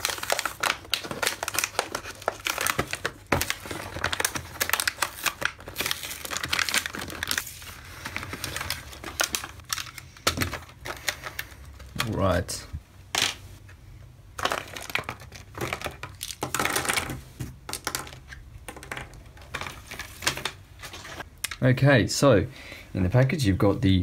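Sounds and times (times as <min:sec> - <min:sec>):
cardboard tearing: 0:00.0 - 0:07.6
plastic blister pack crinkling: 0:00.0 - 0:12.4, 0:14.4 - 0:16.6.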